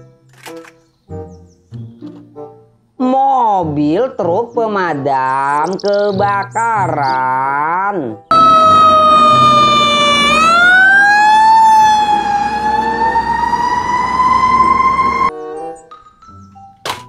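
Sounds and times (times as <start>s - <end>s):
fire truck siren wailing: 8.3s - 15.3s.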